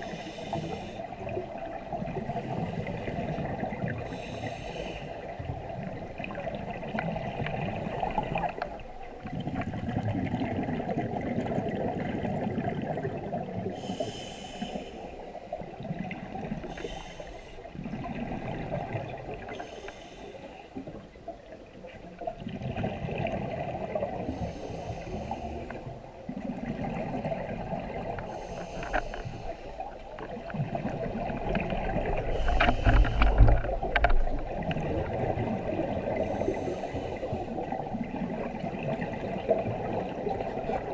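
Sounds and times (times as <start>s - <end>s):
regulator inhale hiss: 0.0s - 1.1s, 4.1s - 5.3s, 13.8s - 15.6s, 16.7s - 17.7s, 19.5s - 20.8s, 24.3s - 25.9s, 28.3s - 29.9s, 32.3s - 33.6s, 36.3s - 37.6s
exhaled bubbles gurgling: 0.0s - 40.9s
low underwater rumble: 0.0s - 40.9s.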